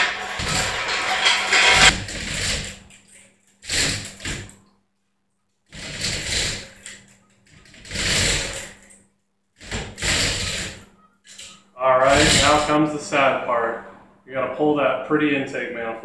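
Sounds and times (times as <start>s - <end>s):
steel chain rattling: 0.0s - 4.5s.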